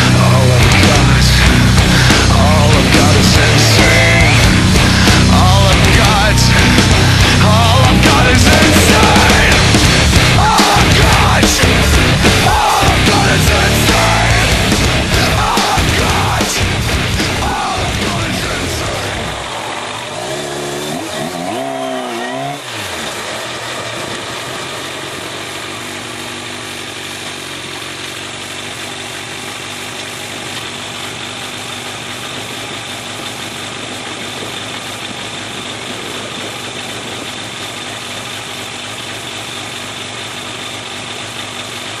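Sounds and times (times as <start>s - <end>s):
motorcycle engine revving: 0.0s - 42.0s
wind and road noise: 31.1s - 41.7s.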